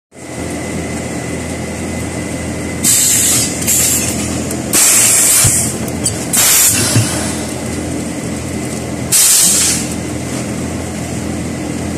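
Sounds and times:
loud bursts of hiss: 2.8s - 4.1s, 4.7s - 5.7s, 6.3s - 7.5s, 9.1s - 9.9s
die-cutting press motor hum: 2.8s - 7.8s.

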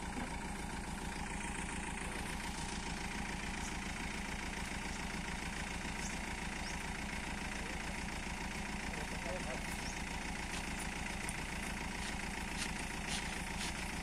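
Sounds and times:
truck engine running steadily: 0.0s - 14.0s.

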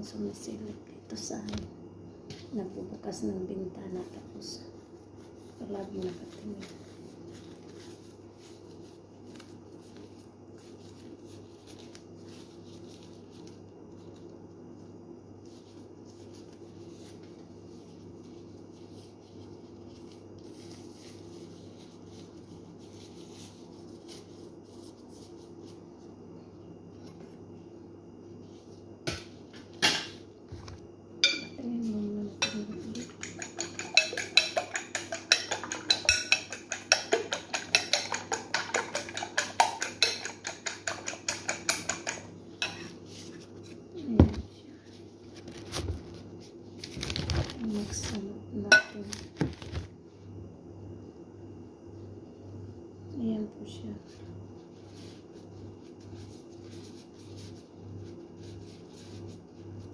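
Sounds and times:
steady low hum: 0.0s - 59.9s
utensils clinking against dishes: 31.2s - 31.6s, 32.4s - 42.9s.

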